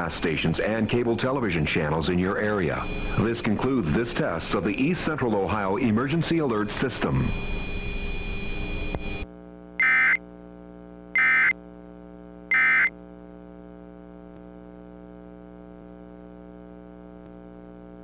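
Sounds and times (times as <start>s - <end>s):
low electrical hum: 0.0s - 18.0s
digital data bursts: 9.8s - 10.2s, 11.2s - 11.5s, 12.5s - 12.9s.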